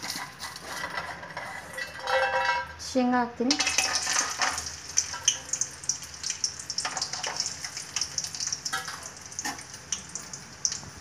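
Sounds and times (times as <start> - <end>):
peanuts sizzling in hot oil: 3.4 - 11.0.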